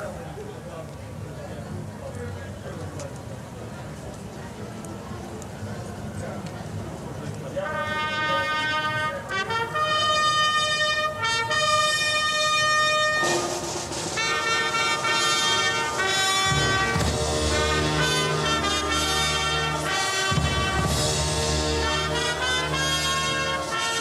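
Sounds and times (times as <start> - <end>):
solemn brass orchestral music: 7.6 - 24.0.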